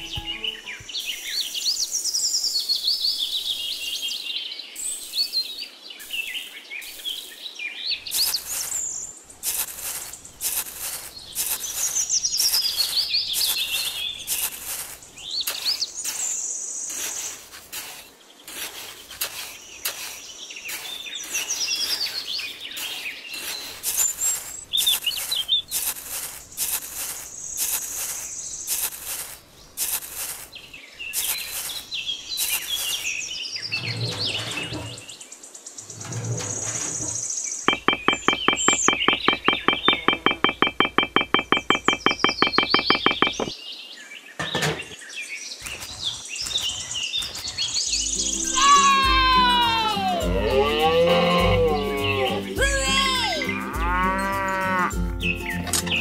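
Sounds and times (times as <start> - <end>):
small birds chirping: 0.0 - 56.0
spade scooping damp sand: 8.0 - 35.2, 36.1 - 43.5, 45.6 - 50.2.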